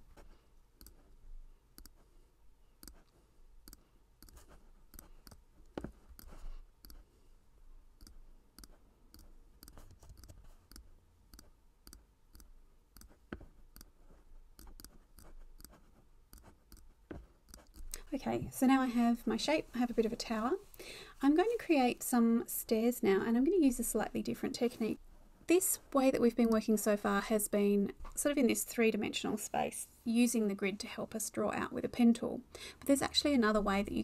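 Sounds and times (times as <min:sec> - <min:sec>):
computer mouse clicks: 0:00.8 - 0:01.0, 0:01.8 - 0:02.0, 0:02.8 - 0:05.4, 0:06.1 - 0:07.0, 0:08.0 - 0:14.0, 0:14.6 - 0:18.0.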